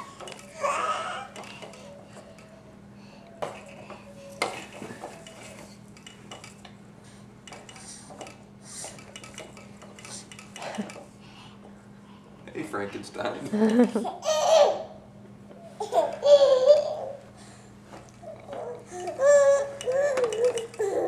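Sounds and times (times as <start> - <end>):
baby walker toy clicking and rattling: 0.0 - 2.5, 3.4 - 6.7, 7.4 - 11.1, 18.4 - 21.0.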